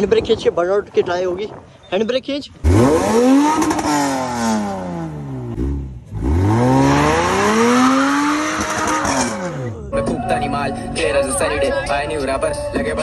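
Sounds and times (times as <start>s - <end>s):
rotary engine revving: 2.6s - 9.8s.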